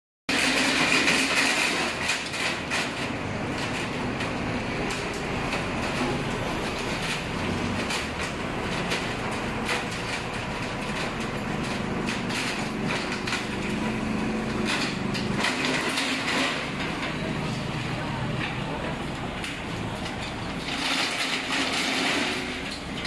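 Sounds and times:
metal roll-up shutter rattling: 0:00.3 - 0:23.0.

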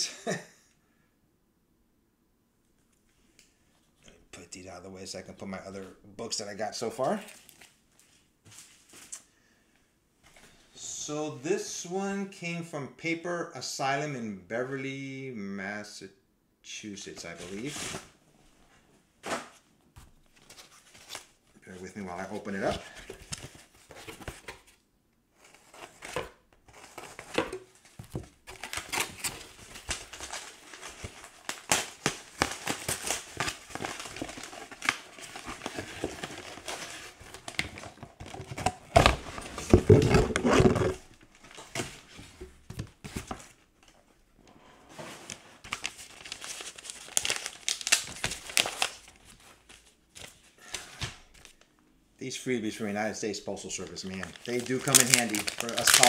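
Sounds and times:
paper packing rustling and ripping: 0:25.4 - 0:44.0, 0:44.9 - 0:51.6, 0:53.7 - 0:56.0.

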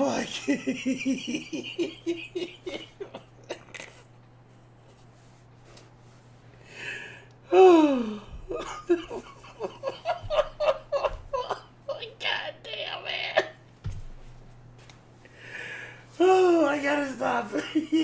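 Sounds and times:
man laughing breathlessly: 0:00.4 - 0:04.1, 0:06.7 - 0:11.8.

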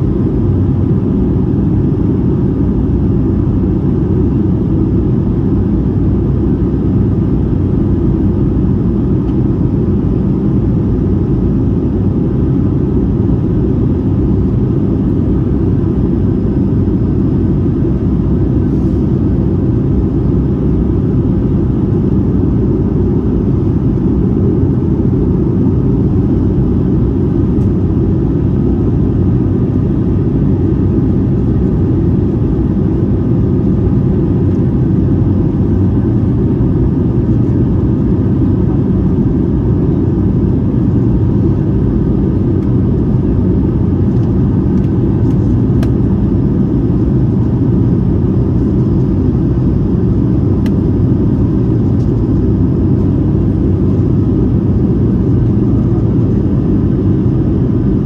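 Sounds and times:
jet engine drone: 0:00.0 - 0:58.0
rush of airflow: 0:17.1 - 0:56.4.

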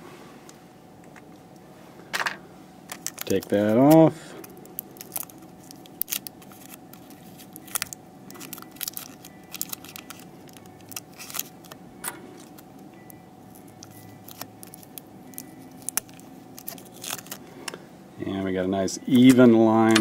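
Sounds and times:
faint steady hum: 0:00.0 - 0:20.0
tape peeling clicks and crackles: 0:02.9 - 0:11.8, 0:12.4 - 0:12.8, 0:13.5 - 0:17.4.

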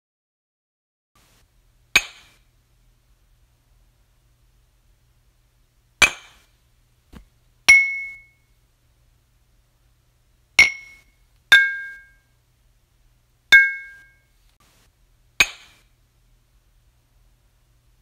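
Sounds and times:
glasses clinking: 0:07.7 - 0:08.3, 0:10.6 - 0:12.2, 0:13.5 - 0:14.2.

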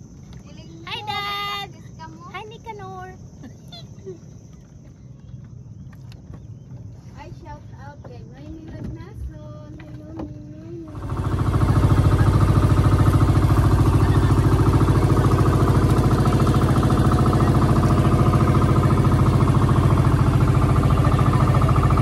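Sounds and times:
boat engine running: 0:00.0 - 0:22.0.

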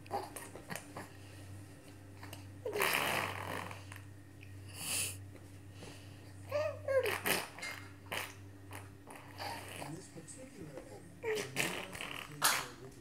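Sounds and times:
baby blowing a raspberry: 0:02.7 - 0:04.0, 0:06.9 - 0:09.9, 0:11.3 - 0:12.8.

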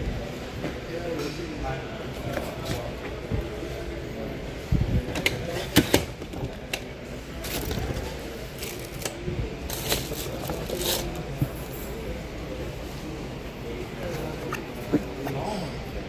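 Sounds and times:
shop hum: 0:00.0 - 0:16.0
suitcases clicking and rattling: 0:05.1 - 0:12.0.

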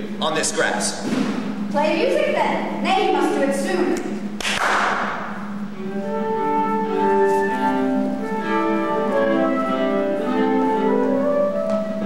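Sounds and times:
string ensemble playing dance tune: 0:05.8 - 0:12.0.

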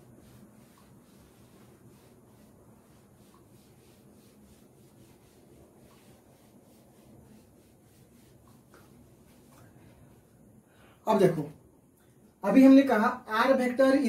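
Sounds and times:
duster rubbing on chalkboard: 0:00.0 - 0:09.6.

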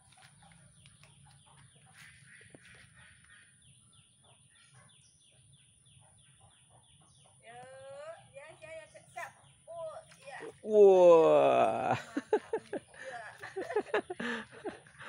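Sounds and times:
bird chirping: 0:00.0 - 0:10.7.

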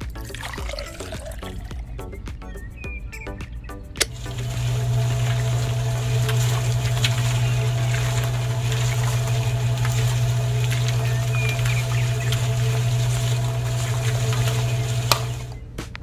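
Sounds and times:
small electric motor humming: 0:04.1 - 0:15.6.

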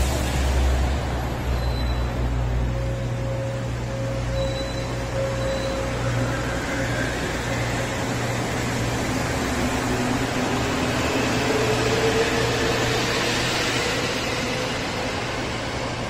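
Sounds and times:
low hum of standing trains: 0:00.0 - 0:16.0.

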